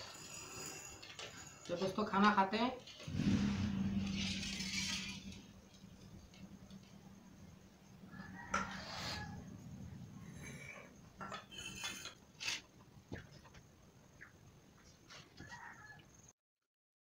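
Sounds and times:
steel plates clinking and scraping: 0:03.1 - 0:07.0, 0:10.2 - 0:12.7.

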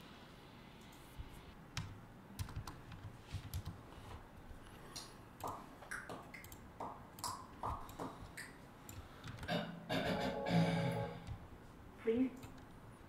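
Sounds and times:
key clicks typing: 0:01.8 - 0:03.8.

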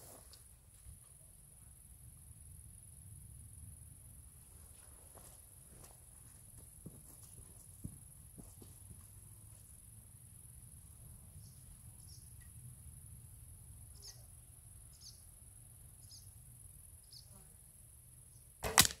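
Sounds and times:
insects chirping: 0:00.0 - 0:19.0
arrow striking with knock: 0:18.6 - 0:19.0.

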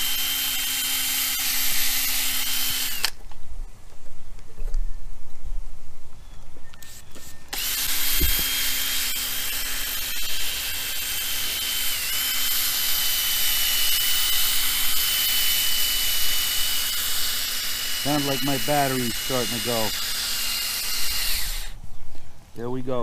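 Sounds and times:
cordless drill spinning pad on plastic: 0:00.0 - 0:03.2, 0:06.8 - 0:21.8.

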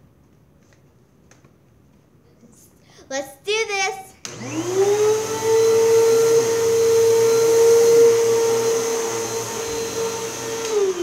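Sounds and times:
vacuum cleaner running: 0:04.2 - 0:11.0.

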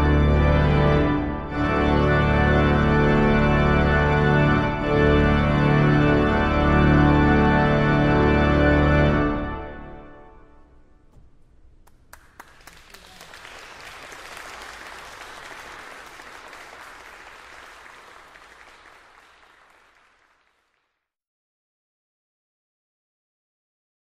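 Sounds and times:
pipe organ chord: 0:00.0 - 0:11.0
audience applauding: 0:11.8 - 0:20.9.

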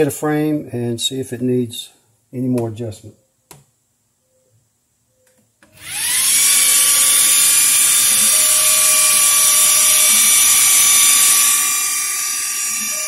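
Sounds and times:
laser engraver fan whine: 0:05.8 - 0:13.0.

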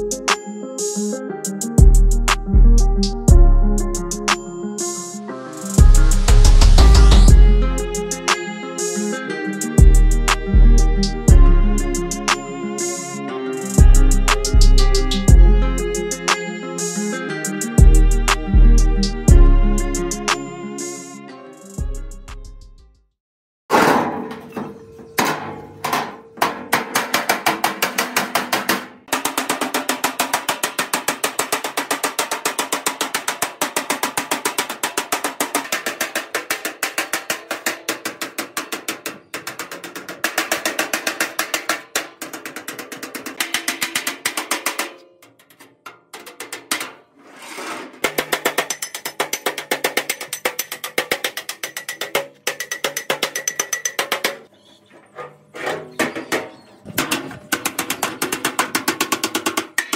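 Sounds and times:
hammer blows on sheet metal: 0:23.7 - 0:45.4.

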